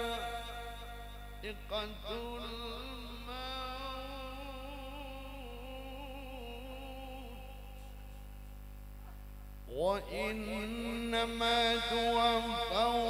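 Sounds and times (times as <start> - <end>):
man reciting melodically through pa: 0.0 - 8.5, 9.6 - 13.0
electrical mains hum: 0.0 - 13.0.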